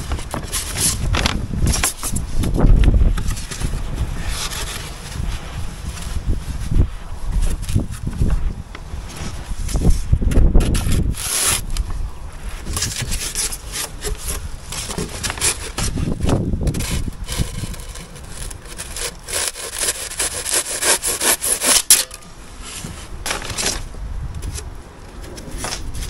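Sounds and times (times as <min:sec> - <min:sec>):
hand saw cutting polystyrene: 0:10.6 - 0:11.8, 0:12.8 - 0:22.2.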